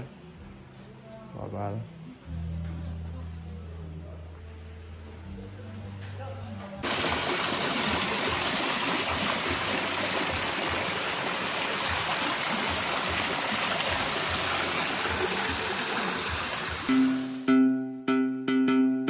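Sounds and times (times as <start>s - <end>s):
waterfall splashing into pool: 6.8s - 17.5s
plucked-string music: 16.7s - 19.0s.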